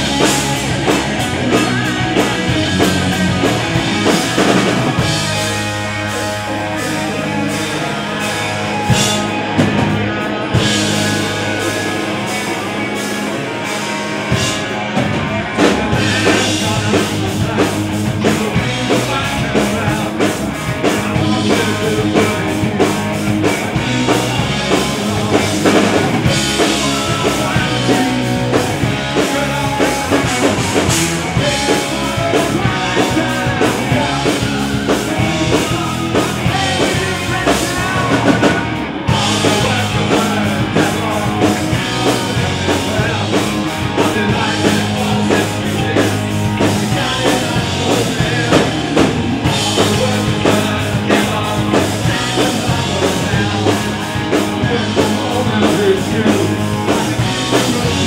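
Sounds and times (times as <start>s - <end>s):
drum kit: 0.0s - 58.0s
electric bass: 0.0s - 58.0s
electric guitar: 0.0s - 58.0s
man singing lead vocal: 0.0s - 58.0s.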